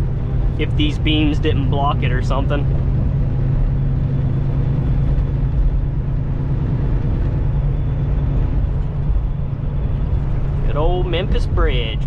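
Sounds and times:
diesel truck engine drone: 0.0s - 12.0s
road and tyre rumble: 0.0s - 12.0s.

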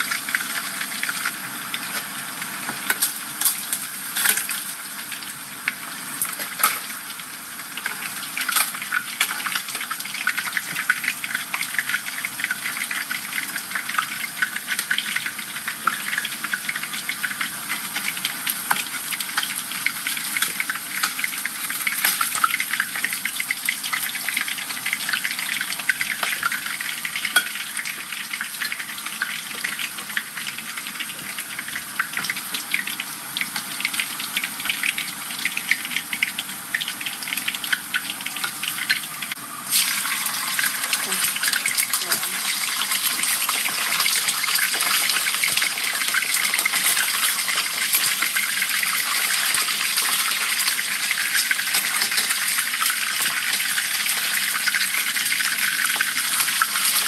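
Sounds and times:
fish sizzling in hot oil: 0.0s - 57.0s.

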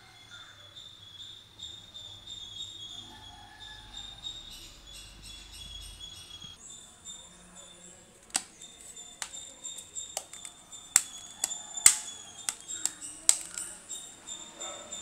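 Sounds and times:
plastic phone cover clicks: 8.2s - 8.5s, 9.2s - 13.8s.

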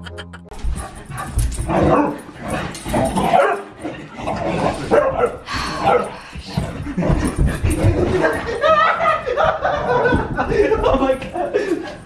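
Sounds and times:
dog barking and yipping: 3.3s - 3.7s.

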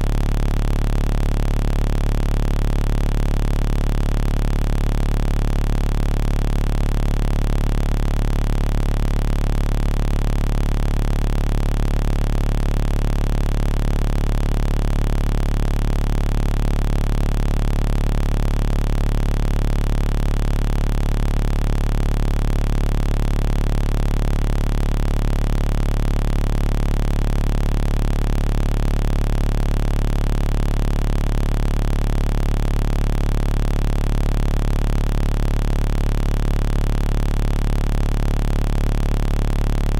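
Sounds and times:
electronic drone with low hum: 0.0s - 39.9s.

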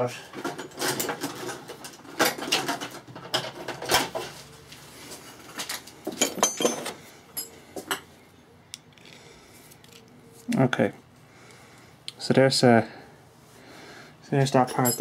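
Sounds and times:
metal hand tools clattering: 6.1s - 7.6s, 14.6s - 15.0s.

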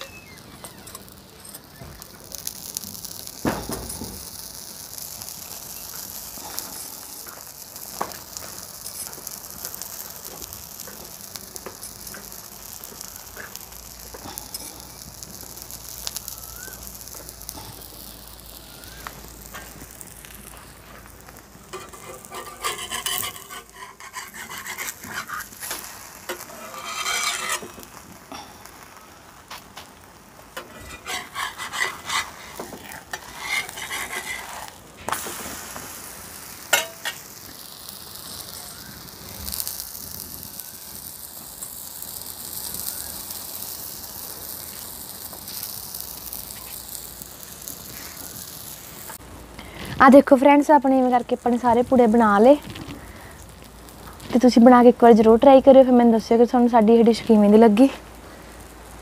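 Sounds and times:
batter sizzling on hot pan: 0.0s - 59.0s
metal spatula scraping pan: 21.7s - 28.0s, 30.6s - 34.8s.

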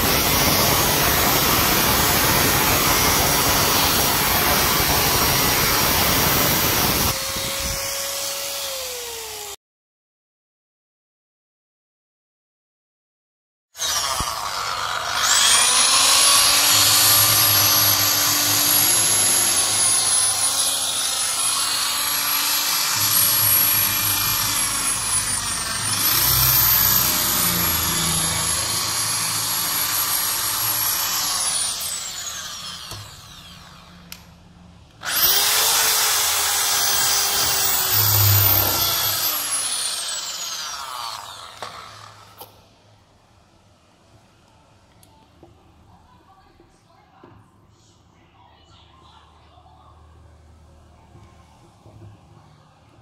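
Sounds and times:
electric drill whining: 0.0s - 9.6s, 13.8s - 34.2s, 35.0s - 42.6s.

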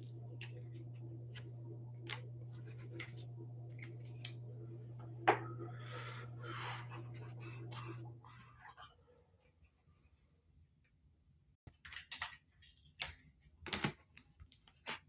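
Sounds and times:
steady low hum: 0.0s - 8.9s
trading cards clicking and rustling: 11.7s - 15.0s.

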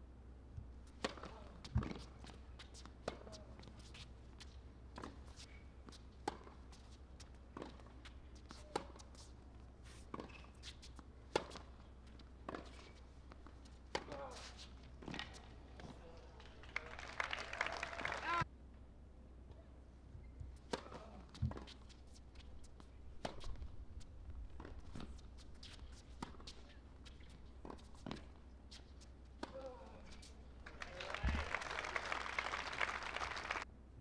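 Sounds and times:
tennis ball bounces: 0.6s - 16.1s, 20.4s - 22.0s
tennis racket hits: 13.7s - 16.0s
voices: 29.5s - 33.6s.

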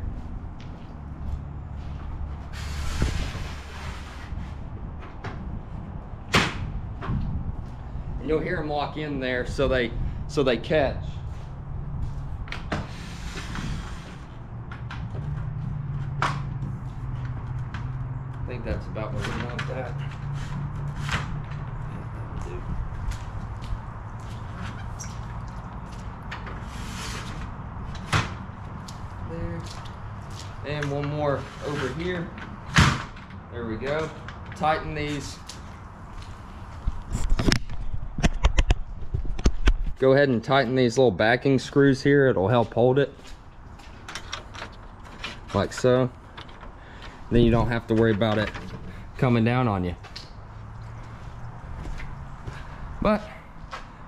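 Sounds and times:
awning arm scraping slide: 2.5s - 4.6s, 12.8s - 14.4s, 26.6s - 27.5s.

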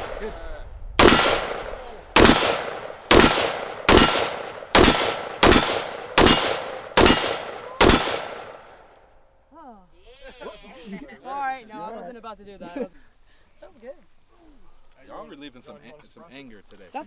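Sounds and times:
rifle shots echoing: 0.0s - 8.9s.

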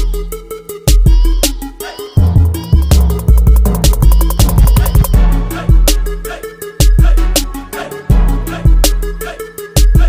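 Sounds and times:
steady drum beat: 2.2s - 6.0s.

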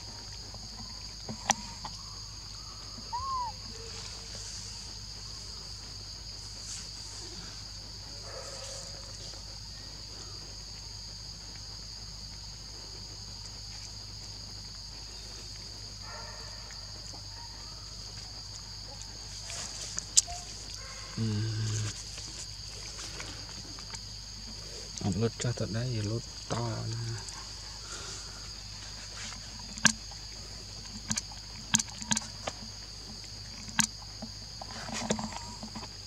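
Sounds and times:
insects droning: 0.0s - 36.0s
rising and falling chirp: 3.1s - 3.6s.

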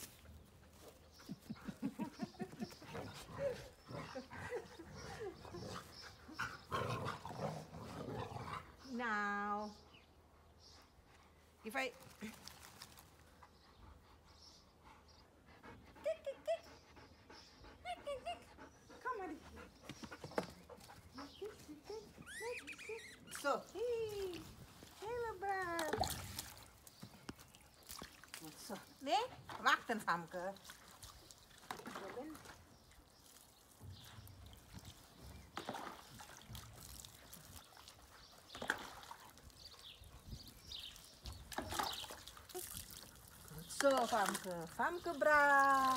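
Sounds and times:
water splashing and trickling: 11.4s - 14.4s, 20.5s - 45.9s.

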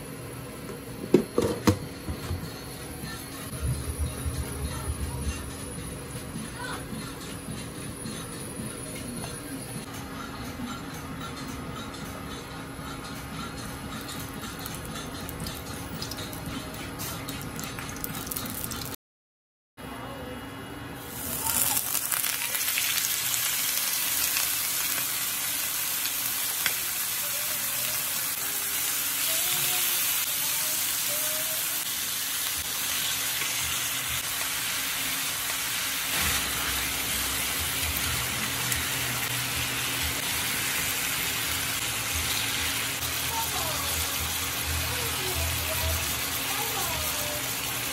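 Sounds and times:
chicken sizzling on a grill pan: 21.1s - 47.9s.

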